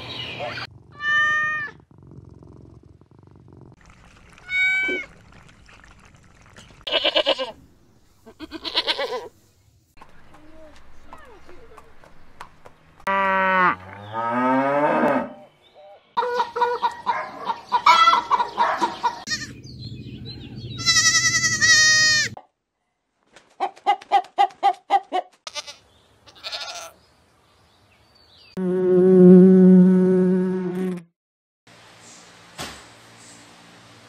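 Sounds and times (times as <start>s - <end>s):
goats bleating: 6.9s - 7.6s, 8.3s - 9.3s, 20.8s - 22.4s, 25.5s - 26.9s.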